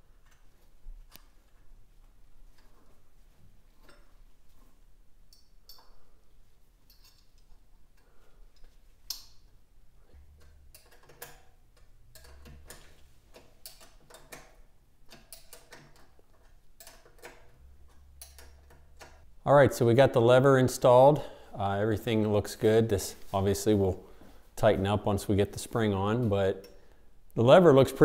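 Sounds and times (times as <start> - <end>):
wrench clicking on metal: 10.4 - 19.2.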